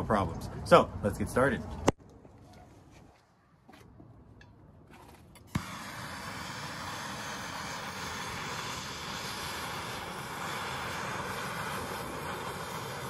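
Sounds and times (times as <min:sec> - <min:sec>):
gas torch lighting pop: 0:05.4 - 0:13.0
gas torch hissing: 0:05.5 - 0:13.0.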